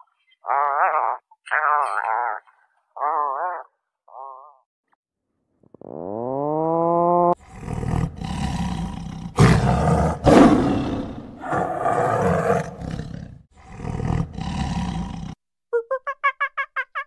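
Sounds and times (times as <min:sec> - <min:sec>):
large animal roaring: 0:07.3 - 0:15.4.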